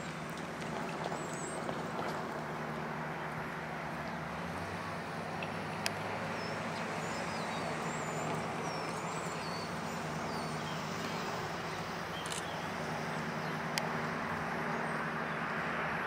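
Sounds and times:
diesel locomotive engine drone: 0:00.0 - 0:16.0
birds chirping: 0:05.9 - 0:15.6
sharp click: 0:12.2 - 0:12.5.

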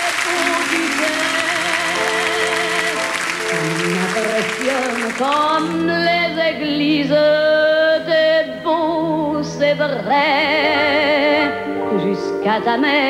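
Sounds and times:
audience applause: 0:00.0 - 0:06.0
woman singing with vibrato: 0:00.0 - 0:13.0
sustained low accompaniment: 0:03.2 - 0:11.2.

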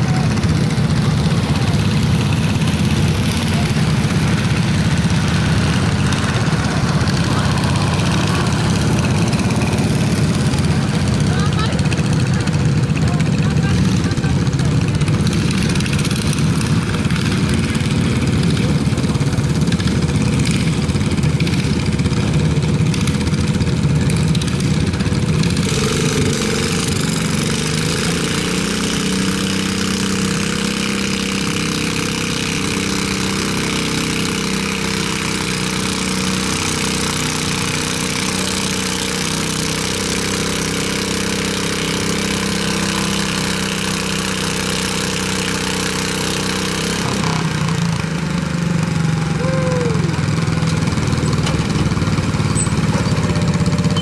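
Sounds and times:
garden tractor engine running: 0:00.0 - 0:54.0.

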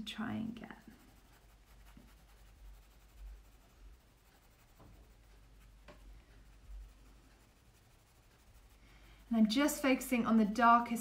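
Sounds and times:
pencil scratching on paper: 0:00.5 - 0:10.2
soft taps: 0:05.8 - 0:06.3.

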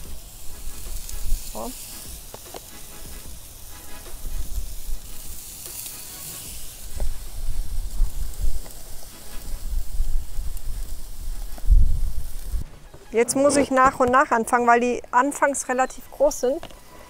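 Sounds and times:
chicken sizzling on a grill: 0:00.0 - 0:12.6
wind rumbling on microphone: 0:06.8 - 0:12.8.

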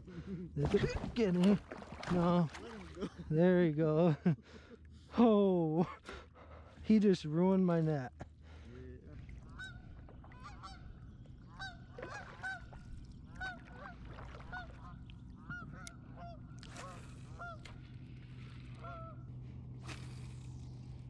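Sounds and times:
steady low hum: 0:00.0 - 0:21.0
geese honking: 0:09.4 - 0:17.9, 0:18.8 - 0:19.2.

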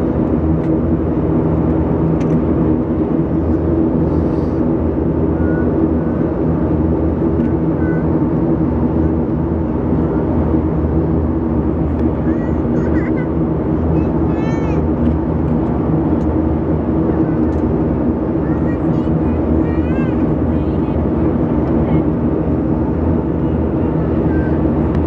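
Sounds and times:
turboprop engines droning: 0:00.0 - 0:25.0.

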